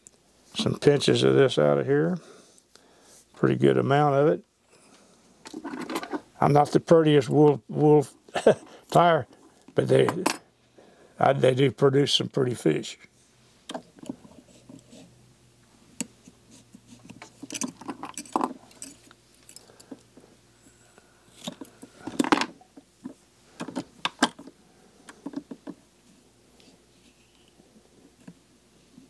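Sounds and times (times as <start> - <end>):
small tools clicking and tapping: 17.0 - 20.2.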